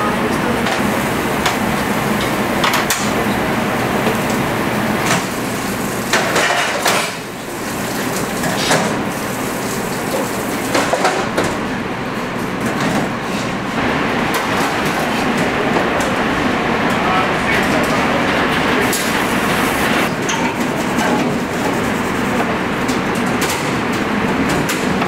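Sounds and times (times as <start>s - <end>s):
metal pans and utensils clanking: 6.1s - 7.3s, 20.1s - 22.0s.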